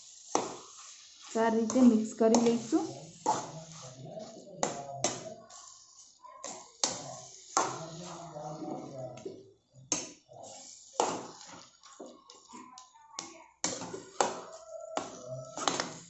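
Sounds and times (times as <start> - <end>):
spoon stirring and scraping pan: 0.0 - 16.0.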